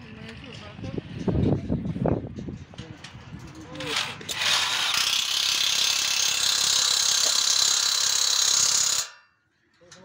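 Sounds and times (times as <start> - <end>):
cordless drill running: 4.3 - 9.1.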